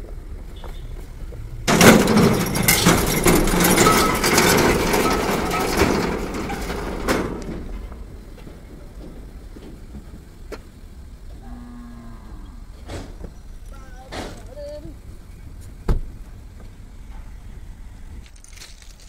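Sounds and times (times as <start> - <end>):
steel ramp plates clattering: 1.6 - 10.7.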